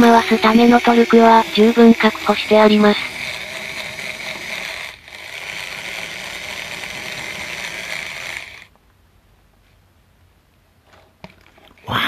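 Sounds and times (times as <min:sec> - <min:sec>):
electric screwdriver motor whirring: 0:00.0 - 0:08.7.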